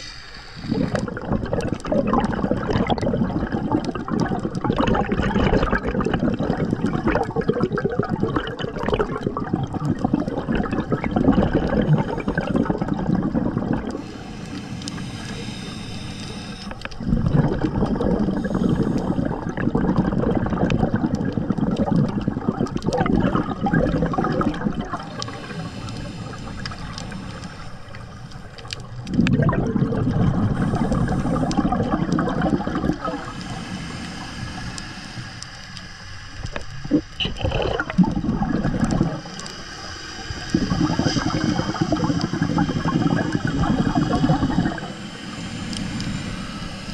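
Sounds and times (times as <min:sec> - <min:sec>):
regulator inhalation hiss: 0:00.0 - 0:01.2, 0:11.6 - 0:19.7, 0:23.9 - 0:28.7, 0:30.4 - 0:37.1, 0:39.0 - 0:46.9
exhaled bubbles rushing underwater: 0:00.6 - 0:46.9.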